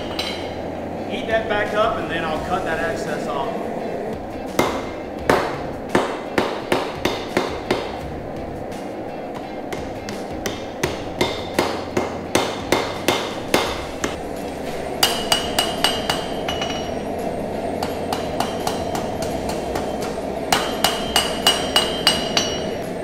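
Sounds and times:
hammer striking steel on anvil: 0:00.0 - 0:00.6, 0:04.5 - 0:08.0, 0:09.7 - 0:22.9.

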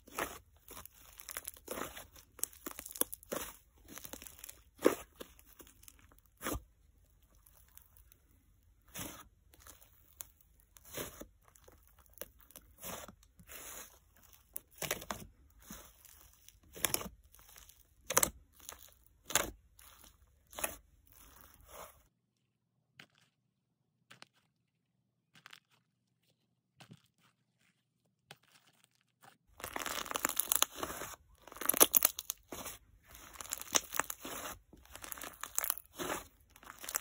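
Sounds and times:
slime popping and crackling: 0:00.0 - 0:21.8, 0:29.5 - 0:37.0.

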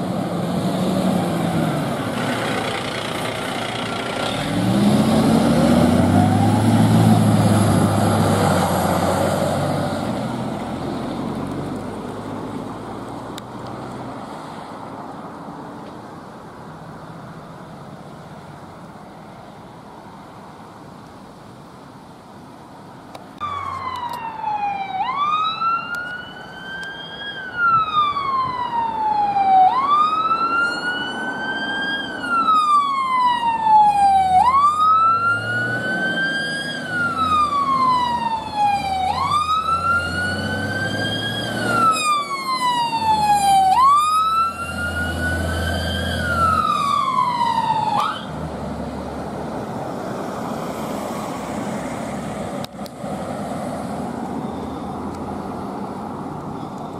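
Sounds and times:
road noise: 0:00.0 - 0:56.9
truck engine rumble: 0:00.0 - 0:56.9
fire engine wail siren: 0:03.6 - 0:11.4, 0:23.4 - 0:52.6.

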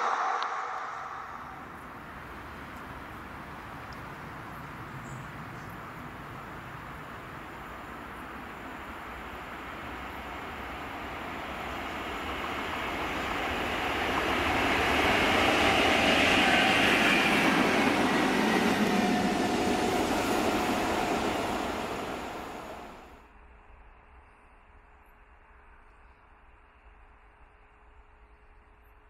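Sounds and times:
diesel locomotives passing: 0:00.0 - 0:23.2.

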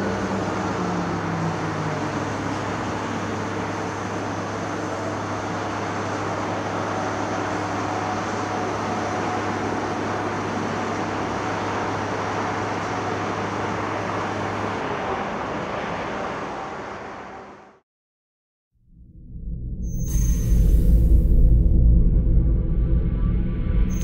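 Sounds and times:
diesel construction machinery running: 0:00.0 - 0:16.0.

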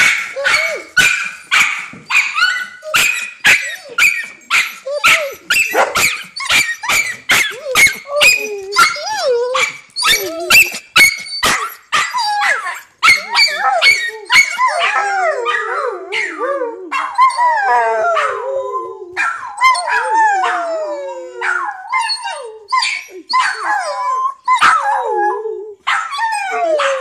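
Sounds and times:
dogs barking excitedly: 0:00.0 - 0:17.4, 0:19.2 - 0:20.6, 0:22.8 - 0:23.9, 0:25.8 - 0:27.0
dogs whining: 0:00.0 - 0:27.0.

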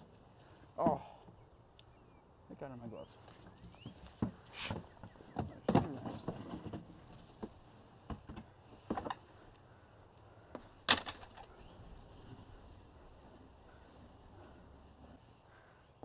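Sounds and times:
objects knocking and bumping: 0:04.1 - 0:09.2.

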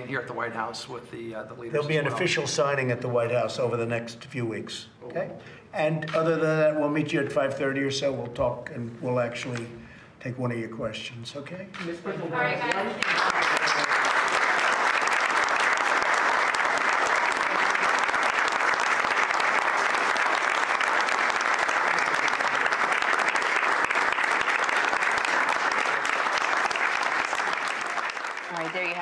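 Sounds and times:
people applauding: 0:12.6 - 0:29.0.

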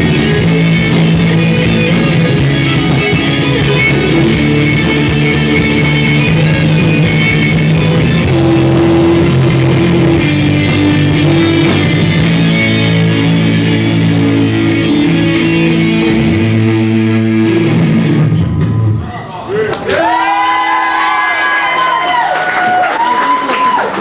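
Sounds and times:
electric guitar chords ringing: 0:00.0 - 0:19.1
rock band playing: 0:00.0 - 0:19.3
bass guitar: 0:00.0 - 0:19.5.

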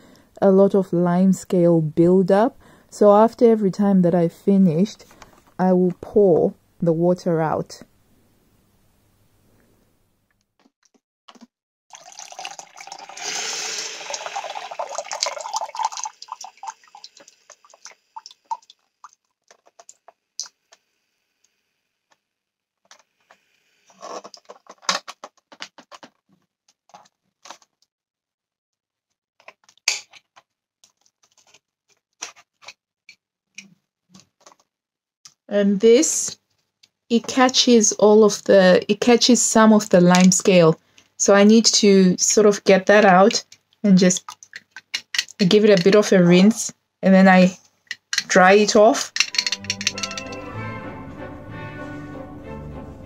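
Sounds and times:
water pouring into plastic jug: 0:11.9 - 0:20.0
water dripping: 0:11.9 - 0:20.6.

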